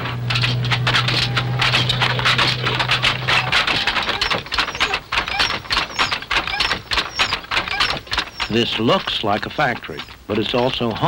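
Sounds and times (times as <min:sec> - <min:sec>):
steady low hum: 0:00.0 - 0:11.0
wooden handlooms clattering: 0:00.0 - 0:11.0
short high squeaks: 0:00.3 - 0:08.8.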